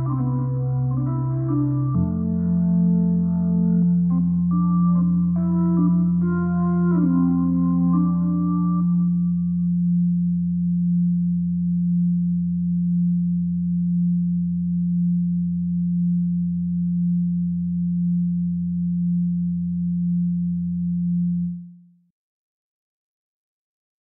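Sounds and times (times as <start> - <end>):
low synthesized drone: 0.0 - 20.5.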